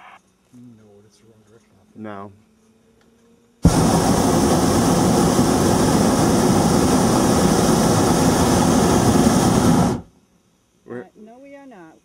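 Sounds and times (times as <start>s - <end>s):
propane burner roaring: 3.6s - 10.1s.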